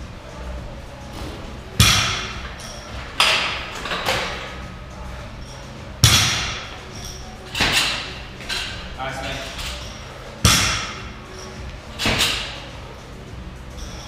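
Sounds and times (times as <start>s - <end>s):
barbell thudding on gym floor: 1.2s - 4.6s, 6.0s - 8.9s, 9.5s - 12.7s.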